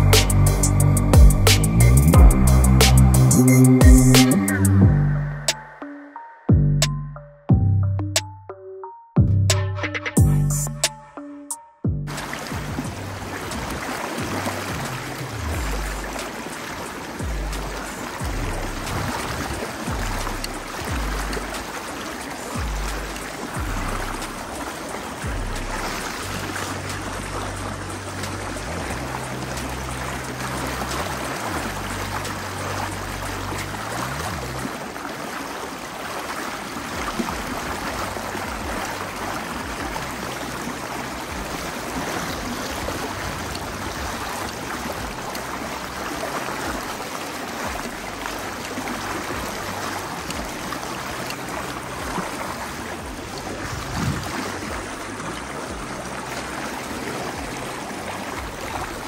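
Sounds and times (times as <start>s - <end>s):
low bass music: 0.0s - 5.8s, 6.5s - 16.3s, 17.2s - 21.8s, 22.6s - 34.8s, 37.0s - 47.1s, 47.7s - 59.0s
river water rushing: 12.1s - 59.0s.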